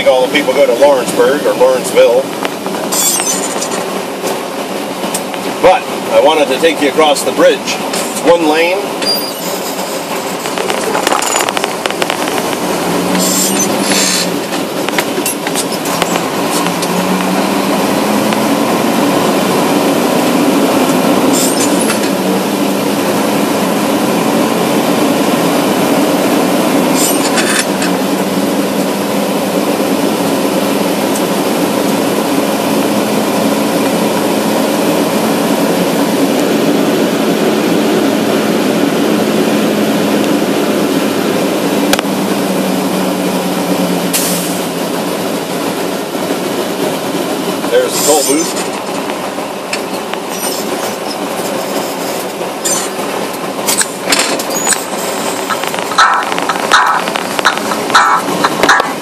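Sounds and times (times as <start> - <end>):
car engine and road noise: 0.0 - 59.0
sharp clicks: 53.7 - 59.0.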